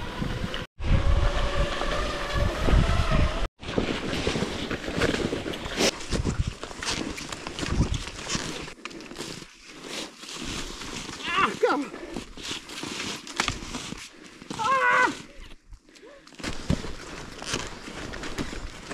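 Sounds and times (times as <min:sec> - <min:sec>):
wind buffeting microphone: 0:00.0 - 0:04.1
skis rushing over snow: 0:03.6 - 0:15.4.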